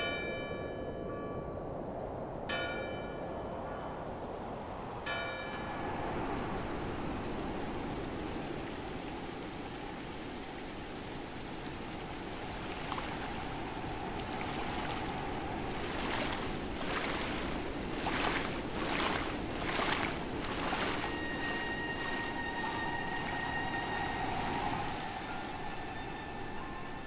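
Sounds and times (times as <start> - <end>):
water rushing: 2.8 - 27.0
footsteps splashing in water: 12.4 - 24.5.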